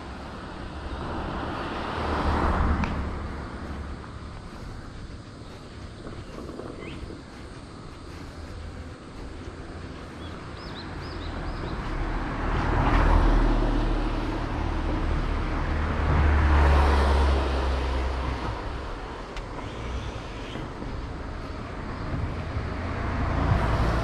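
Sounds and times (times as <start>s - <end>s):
vehicles driving past: 0.0s - 24.0s.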